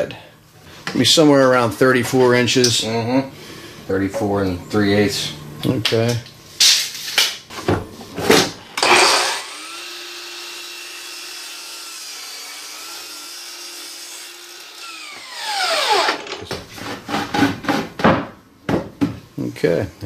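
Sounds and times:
electric saw cutting wood: 0:08.8 - 0:16.4.

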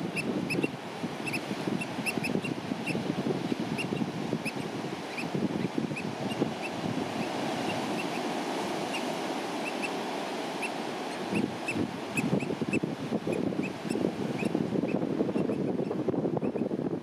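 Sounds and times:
bird piping calls: 0:00.0 - 0:03.0, 0:08.9 - 0:10.0, 0:10.6 - 0:14.5
wind rushing: 0:00.0 - 0:10.6, 0:11.2 - 0:17.0.

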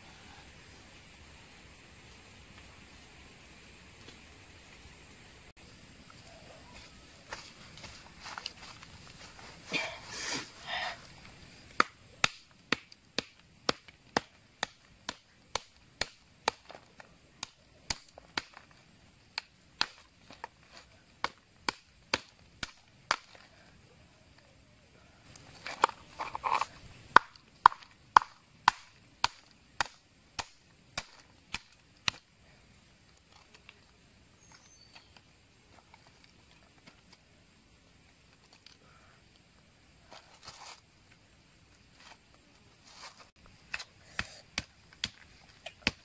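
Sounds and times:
rustling: 0:02.0 - 0:11.8, 0:40.0 - 0:46.0.

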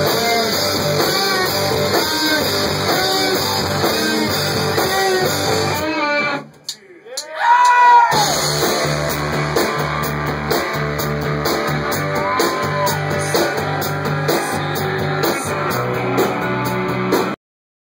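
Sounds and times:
rock band playing live: 0:00.0 - 0:06.7, 0:08.1 - 0:17.4
bent guitar notes: 0:00.0 - 0:06.8.

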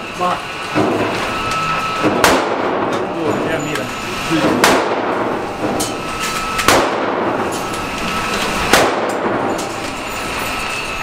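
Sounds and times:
echoing gunshots indoors: 0:02.0 - 0:03.1, 0:04.4 - 0:05.8, 0:06.5 - 0:10.1.

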